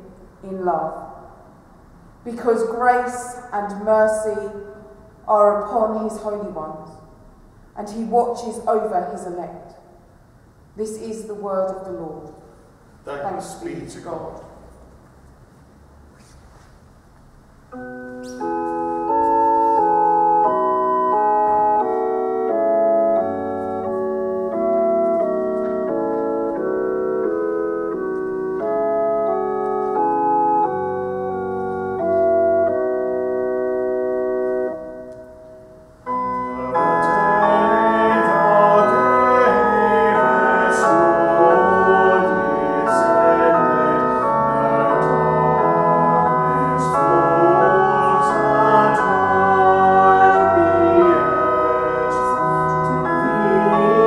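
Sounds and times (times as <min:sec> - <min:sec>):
organ playing sustained chords: 0:17.5 - 0:54.0
voices singing: 0:36.6 - 0:54.0.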